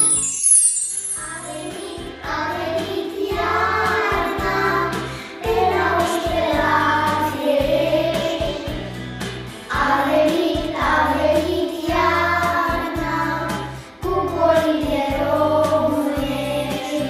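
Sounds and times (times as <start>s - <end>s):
glittering chime sliding down: 0.0s - 1.6s
children singing: 1.1s - 8.9s, 9.7s - 17.0s.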